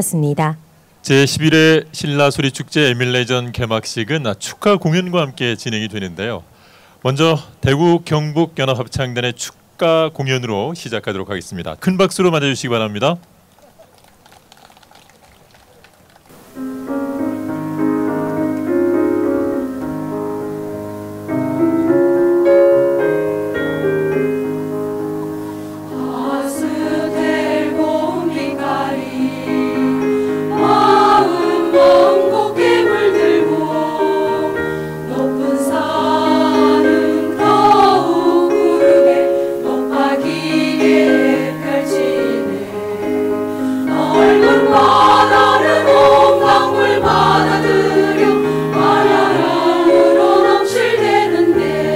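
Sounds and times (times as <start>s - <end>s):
instrumental accompaniment: 16.3s - 51.9s
choir singing: 24.5s - 51.9s.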